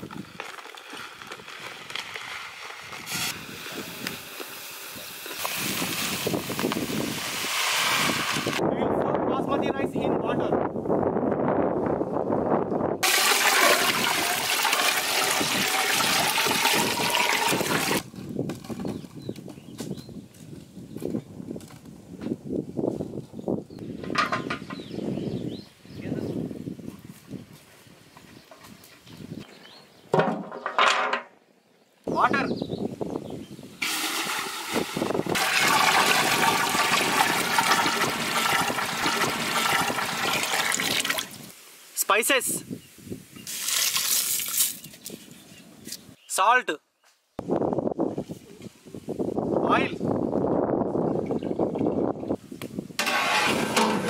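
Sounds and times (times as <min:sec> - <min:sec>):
water pouring into metal pot: 0:13.0 - 0:18.0, 0:33.8 - 0:41.5, 0:53.0 - 0:54.0.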